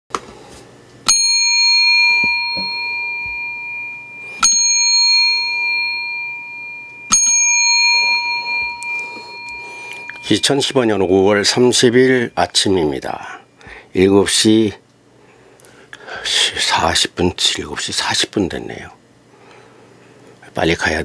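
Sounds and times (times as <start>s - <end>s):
bell ringing: 1.1s - 13.2s.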